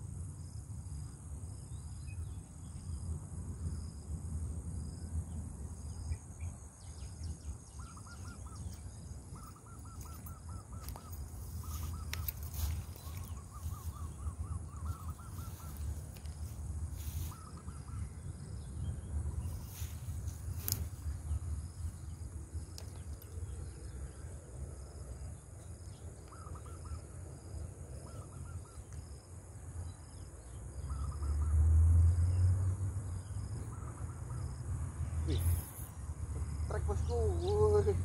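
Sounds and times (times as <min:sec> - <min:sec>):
high insect drone: 0:00.0 - 0:38.0
bird calling in repeated notes: 0:07.7 - 0:18.3, 0:26.2 - 0:27.1.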